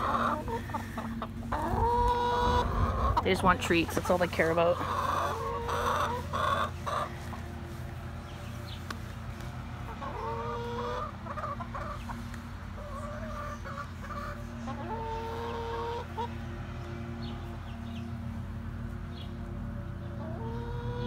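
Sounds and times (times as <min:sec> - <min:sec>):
chickens clucking and calling: 0:00.0 - 0:21.0
steady low hum: 0:00.0 - 0:21.0.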